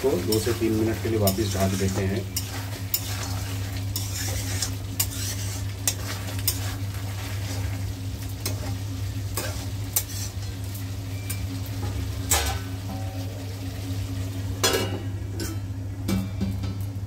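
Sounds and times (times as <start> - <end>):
chicken sizzling in hot oil: 0.0 - 17.0
steady low hum: 0.0 - 17.0
spatula scraping against pan: 0.1 - 12.6.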